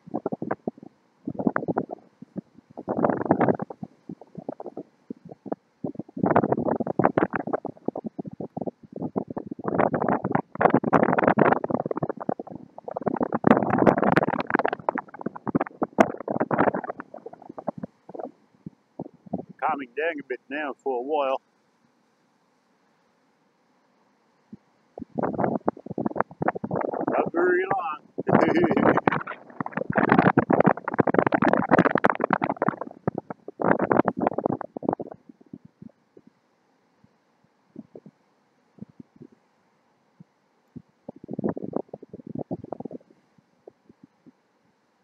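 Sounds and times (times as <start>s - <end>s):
wind buffeting microphone: 0.0s - 19.7s, 24.5s - 35.9s, 37.7s - 38.1s, 38.8s - 39.4s, 40.8s - 44.2s.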